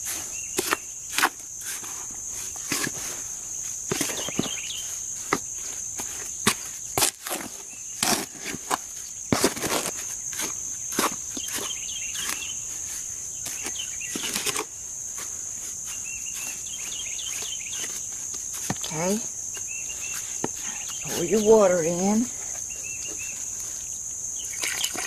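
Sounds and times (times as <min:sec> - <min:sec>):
tool scraping dry cement mix: 0:00.0 - 0:23.9
high insect drone: 0:00.0 - 0:25.0
bird chirps: 0:22.6 - 0:23.5.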